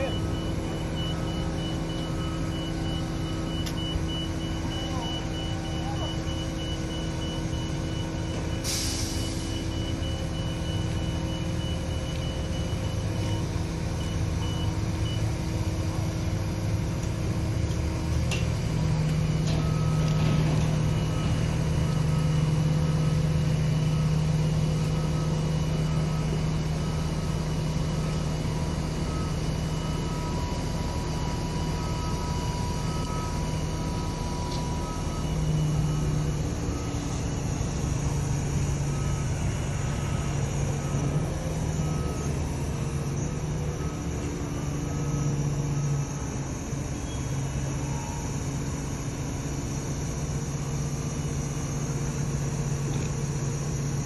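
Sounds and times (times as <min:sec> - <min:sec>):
electronic warning beeper: 0:00.0 - 0:15.3, 0:18.8 - 0:48.5
truck engine running: 0:00.0 - 0:54.0.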